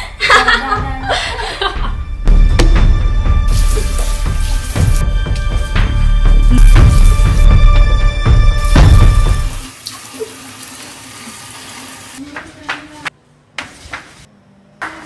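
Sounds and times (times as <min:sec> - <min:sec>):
water running and splashing: 0:03.5 - 0:07.6, 0:08.6 - 0:12.6.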